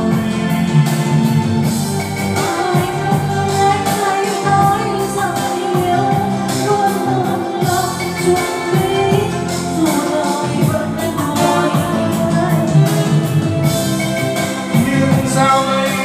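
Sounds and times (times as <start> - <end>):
woman singing: 0.0 - 1.4, 2.2 - 16.0
karaoke backing track: 0.0 - 16.0
man singing: 14.7 - 16.0.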